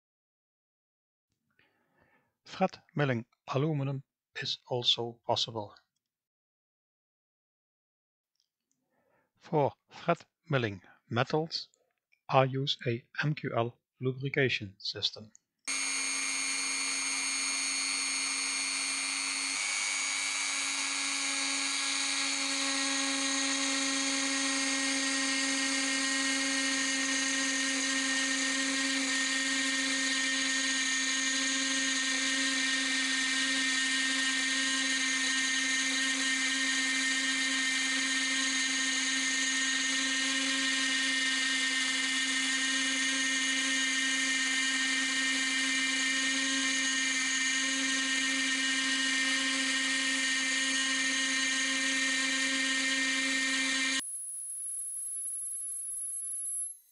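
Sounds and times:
rotary tool high-pitched whine: 0:15.7 - 0:56.9.

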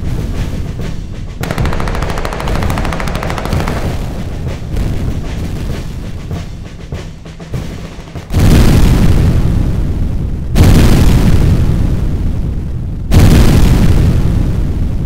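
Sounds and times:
machine-gun fire: 0:01.4 - 0:09.6
low rumble: 0:01.4 - 0:13.1.

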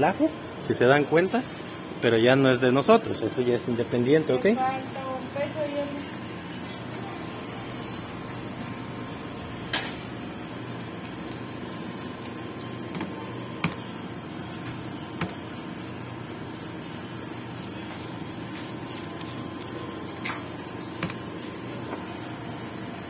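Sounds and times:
steady background hum: 0:00.0 - 0:23.0.

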